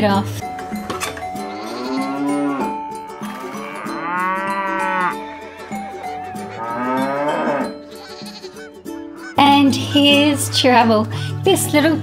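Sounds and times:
faint background music: 0:00.0 - 0:12.0
cow mooing: 0:01.4 - 0:08.6.

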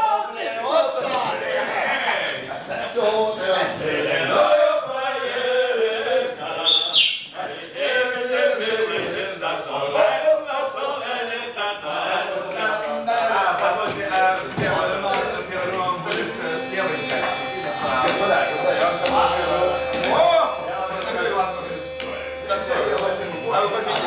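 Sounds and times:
men chanting: 0:00.0 - 0:24.0
high whistle-like tone: 0:06.6 - 0:07.4.

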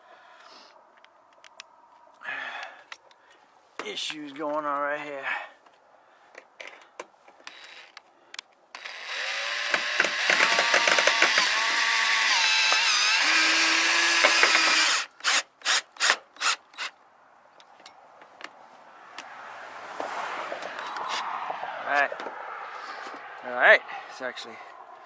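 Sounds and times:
cordless drill driving screw: 0:07.4 - 0:08.0, 0:08.8 - 0:16.9.

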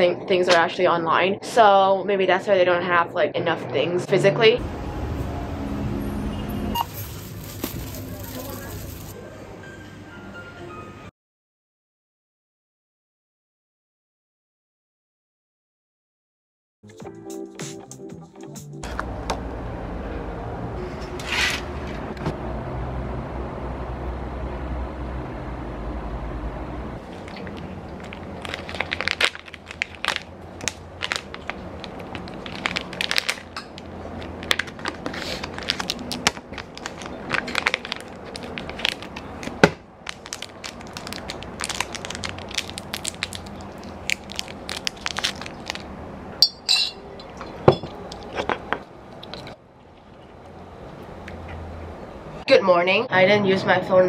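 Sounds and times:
snack packet crackling: 0:06.8 - 0:09.2, 0:27.0 - 0:45.9.

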